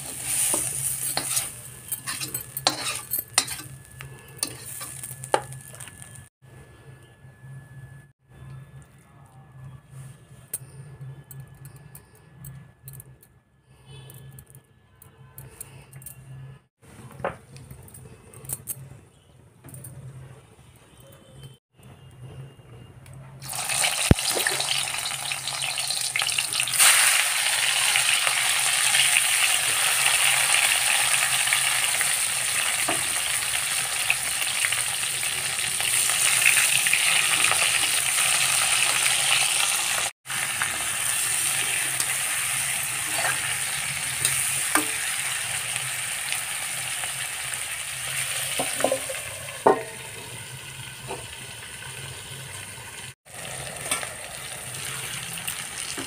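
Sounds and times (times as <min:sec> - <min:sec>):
scraping and clatter in a pan: 0:00.0 - 0:05.6
vegetables sizzling in hot oil: 0:00.0 - 0:06.3, 0:23.4 - 0:56.0.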